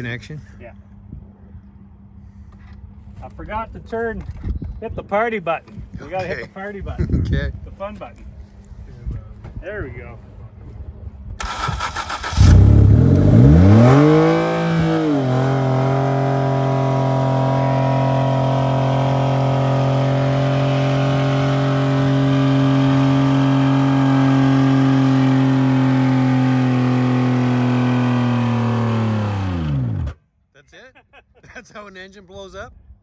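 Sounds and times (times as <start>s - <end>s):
engine revving at full throttle: 11.4s - 30.2s.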